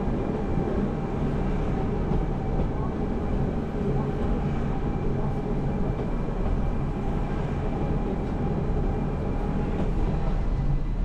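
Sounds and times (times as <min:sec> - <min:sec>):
train rumbling: 0:00.0 - 0:11.0.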